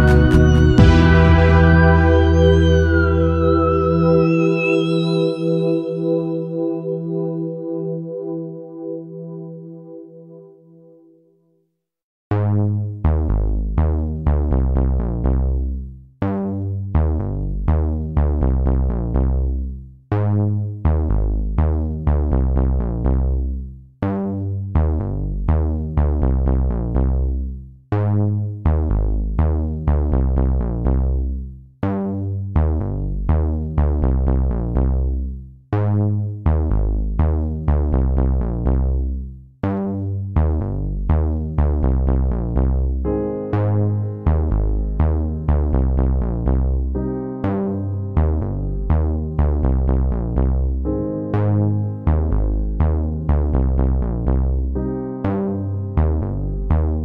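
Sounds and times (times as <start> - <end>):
electronic synth music with drum machine: 0.0 - 10.9, 40.5 - 57.0.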